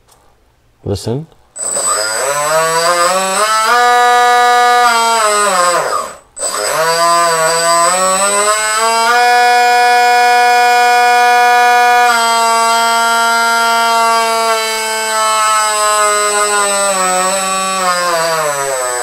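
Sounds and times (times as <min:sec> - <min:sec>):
electric motor whine: 0:01.6 - 0:19.0.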